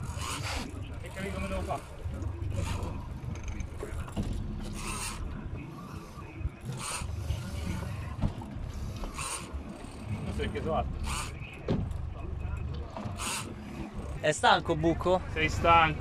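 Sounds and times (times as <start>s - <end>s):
fishing reel cranking: 0.0s - 3.7s, 4.6s - 5.3s, 6.7s - 8.0s, 8.9s - 11.4s, 13.2s - 13.6s
steady low rumble: 0.0s - 16.0s.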